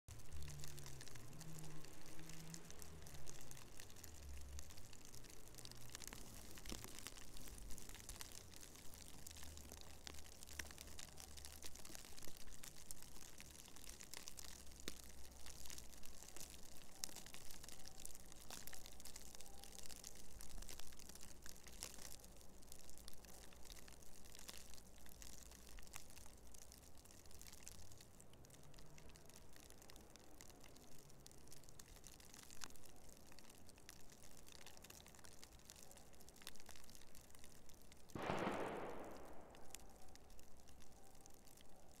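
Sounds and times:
snow ticking on dry leaves: 0:00.1 - 0:42.0
distant bang with echo: 0:38.2 - 0:39.8
faint low rumble: 0:38.2 - 0:41.8.

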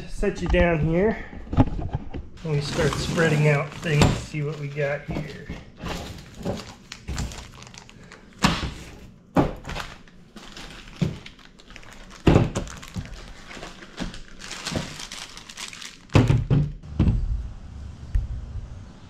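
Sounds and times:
plastic crinkling: 0:02.4 - 0:16.5.

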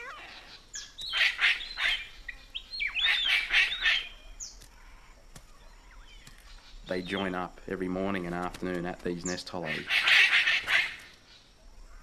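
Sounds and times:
cockatoo screeching calls: 0:00.0 - 0:02.2, 0:02.8 - 0:06.8, 0:09.6 - 0:11.2.

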